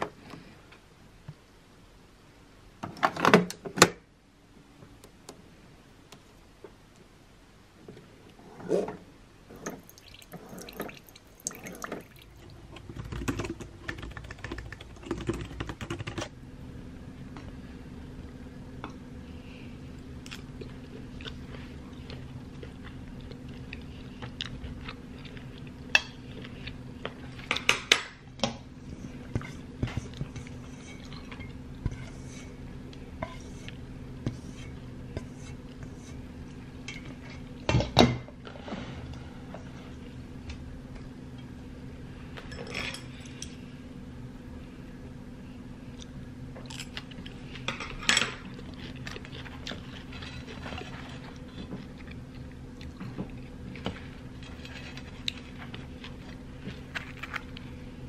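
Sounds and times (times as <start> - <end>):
steady low hum: 4.0 - 58.0
coffee maker brewing: 9.5 - 16.2
water hissing and pouring: 9.6 - 12.4
chewing: 20.2 - 27.5, 48.4 - 57.7.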